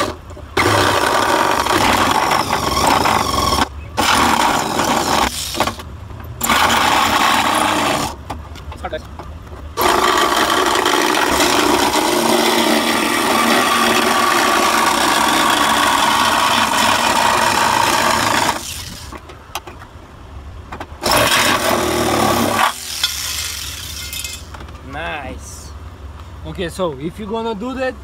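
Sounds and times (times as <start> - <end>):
power tool cutting sheet metal: 0.0 - 5.8, 6.4 - 8.2, 9.8 - 19.1, 21.0 - 24.4.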